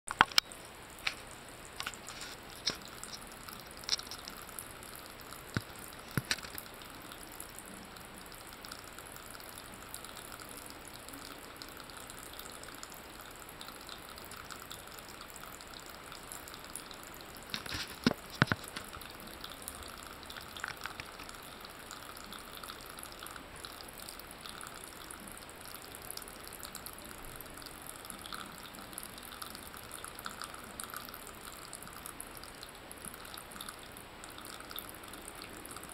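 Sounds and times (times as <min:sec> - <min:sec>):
water trickling from tap into sink: 0:11.2 - 0:26.8.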